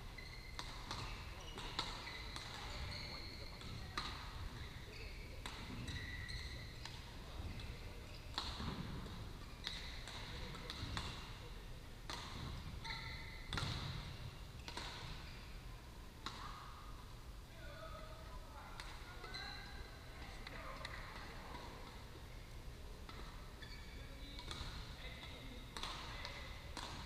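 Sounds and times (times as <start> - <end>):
shoe squeaks: 0.0 - 8.4, 12.6 - 15.7, 23.4 - 24.4
rackets striking shuttlecocks: 0.5 - 2.9, 8.3 - 11.4, 13.4 - 15.2, 24.4 - 27.0.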